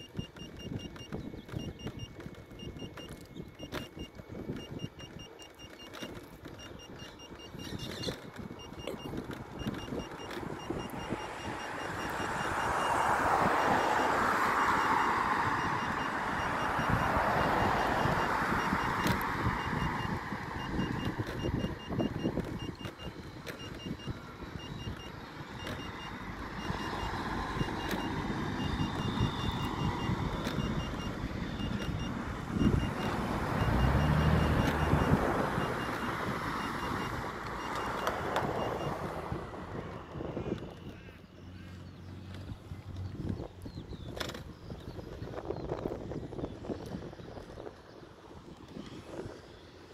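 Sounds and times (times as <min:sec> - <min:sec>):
short high beeps: 0:00.0 - 0:39.2
wind rushing over microphone: 0:06.8 - 0:41.0, 0:42.2 - 0:49.9
vehicle engine passing: 0:09.2 - 0:22.9, 0:23.6 - 0:44.7.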